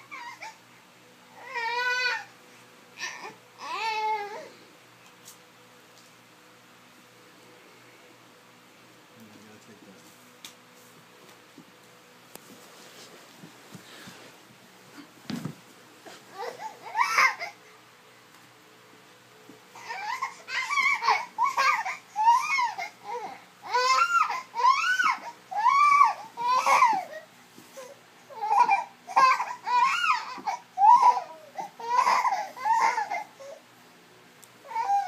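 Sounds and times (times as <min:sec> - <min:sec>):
baby fussing and crying: 0:00.0 - 0:00.6, 0:03.0 - 0:04.5, 0:16.3 - 0:17.6, 0:19.8 - 0:33.6, 0:34.6 - 0:35.0.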